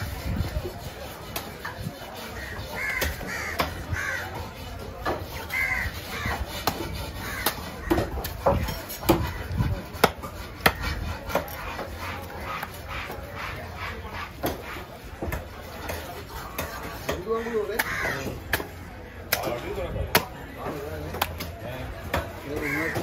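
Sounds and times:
crows cawing: 0:02.4 - 0:04.4, 0:05.5 - 0:06.4, 0:07.1 - 0:08.1, 0:17.4 - 0:18.4, 0:22.5 - 0:23.0
cleaver chopping on wooden block: 0:06.5 - 0:11.9.

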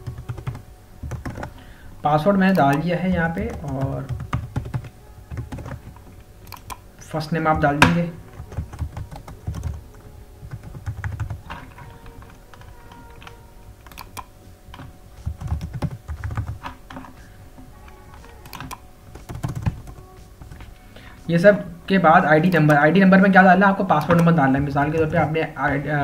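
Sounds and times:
typing on computer keyboard: 0:00.0 - 0:01.6, 0:03.5 - 0:06.8, 0:08.4 - 0:17.1, 0:18.2 - 0:20.7, 0:24.0 - 0:25.2.

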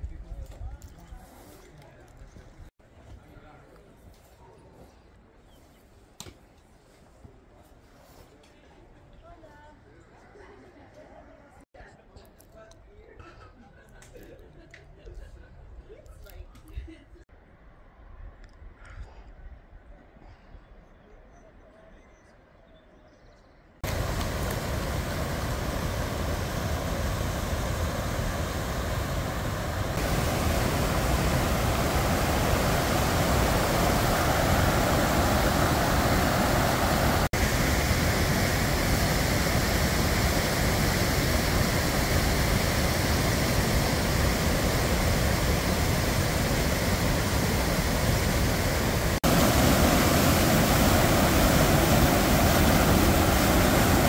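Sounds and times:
stream rushing over boulders: 0:23.8 - 0:54.0.

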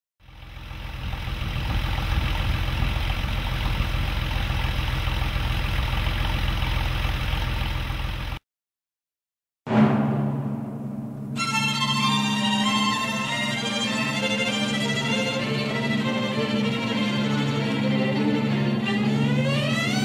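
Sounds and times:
car engine idling: 0:00.2 - 0:08.4, 0:11.7 - 0:20.0
string music with violin: 0:11.4 - 0:20.0.

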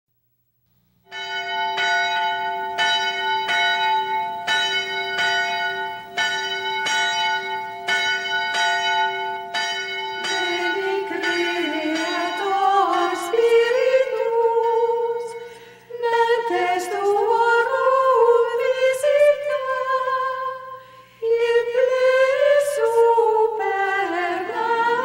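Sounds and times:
church bell ringing: 0:01.1 - 0:19.8
people singing: 0:10.2 - 0:25.0.

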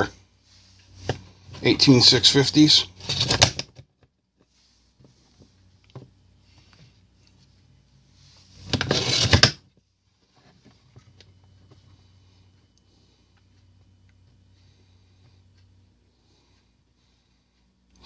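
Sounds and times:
battery scraping into charger bay: 0:08.6 - 0:09.6.

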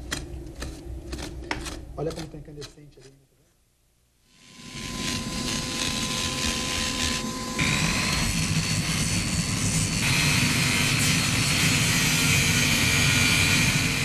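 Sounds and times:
angle grinder grinding stone: 0:04.3 - 0:14.0.

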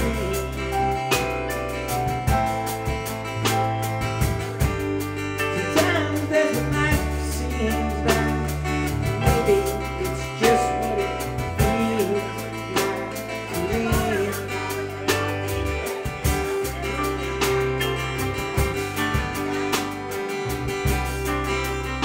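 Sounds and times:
live band playing: 0:00.0 - 0:22.0
sliding lead melody: 0:00.0 - 0:22.0.

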